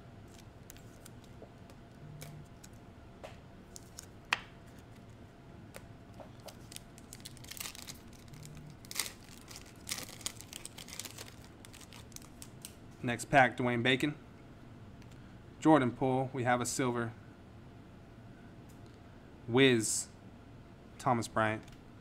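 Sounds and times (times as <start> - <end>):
wrapper crinkling and tearing: 3.7 - 5.0, 6.4 - 12.8.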